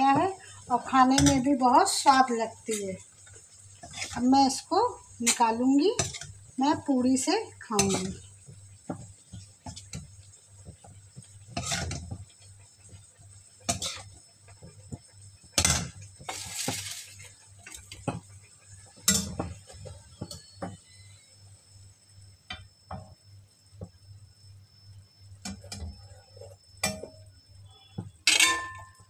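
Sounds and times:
steel spoon scraping and clinking: 28.3s - 29.0s.

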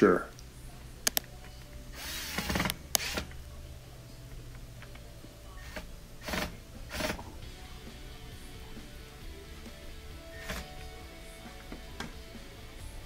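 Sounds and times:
handling clicks: 1.0s - 1.6s
cordless drill running: 2.0s - 3.3s, 5.6s - 7.2s.

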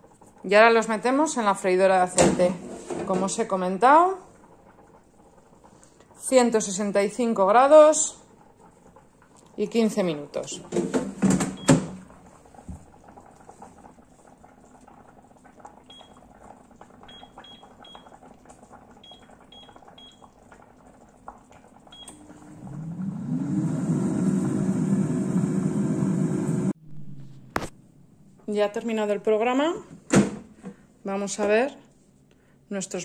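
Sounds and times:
air fryer fan whirring: 22.0s - 26.7s.

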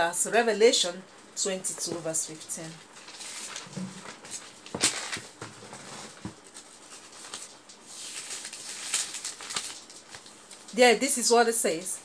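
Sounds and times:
pages rustling: 2.6s - 10.8s.

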